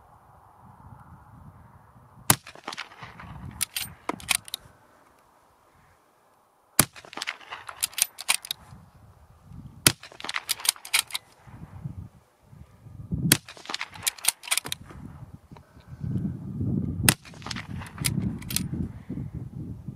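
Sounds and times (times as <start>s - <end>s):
rifle shots: 2.3s - 4.6s, 6.8s - 8.6s, 9.8s - 11.4s, 13.3s - 14.8s, 17.1s - 18.7s.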